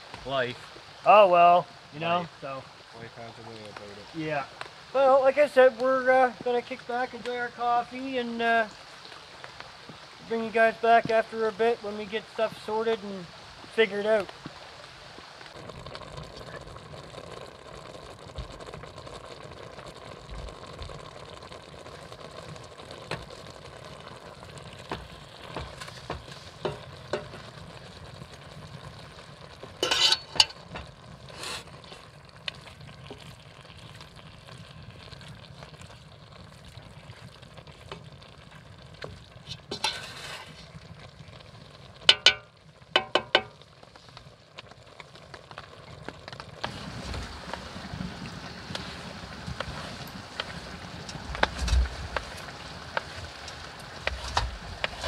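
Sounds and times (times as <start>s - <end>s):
meat sizzling in a pot: 0.0s - 55.0s
wooden spoon scraping a pot: 29.8s - 32.1s, 39.4s - 40.7s, 54.0s - 55.0s.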